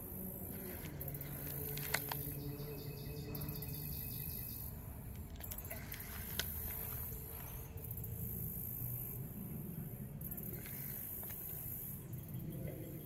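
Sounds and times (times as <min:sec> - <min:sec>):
low steady hum: 0:00.0 - 0:13.0
sharp clicks: 0:01.4 - 0:02.4.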